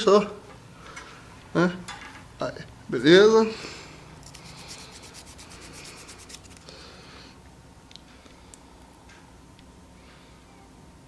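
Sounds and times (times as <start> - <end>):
nail file scratching: 4.2 - 6.7.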